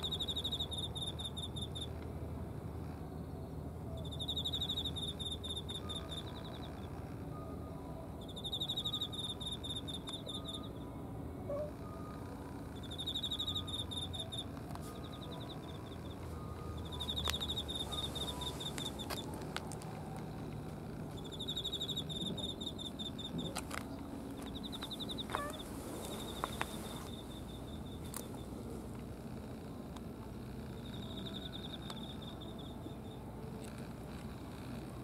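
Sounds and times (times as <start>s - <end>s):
cricket chirping: 0.0s - 2.0s, 3.0s - 7.6s, 8.2s - 35.0s.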